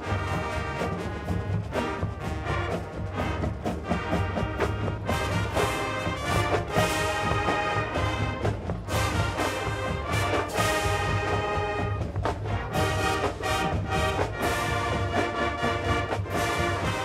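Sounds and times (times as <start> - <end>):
brass chords: 0.0 - 17.0
drum beats: 0.0 - 17.0.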